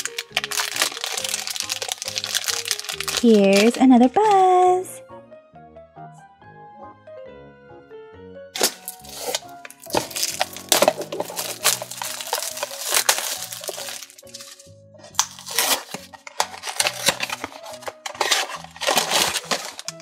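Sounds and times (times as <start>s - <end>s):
background music: 0.0s - 20.0s
cardboard box being torn open: 8.6s - 14.6s, 15.2s - 20.0s.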